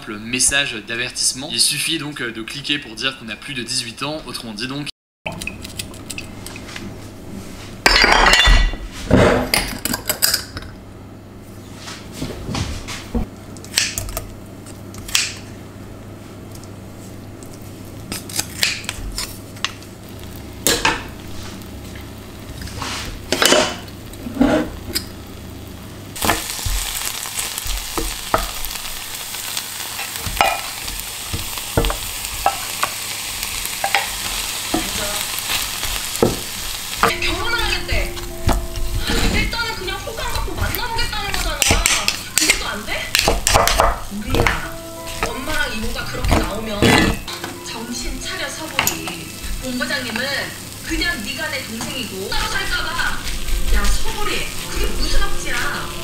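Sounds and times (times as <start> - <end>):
dishes and utensil clinking: 7.9 - 10.8
food sizzling in a hot pan: 17.0 - 56.0.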